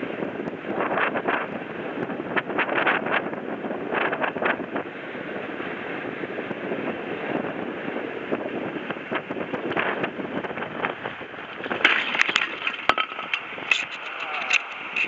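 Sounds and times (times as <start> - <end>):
strong wind buffeting microphone: 0.0 - 15.0
catamaran tipping over with knocks: 8.3 - 15.0.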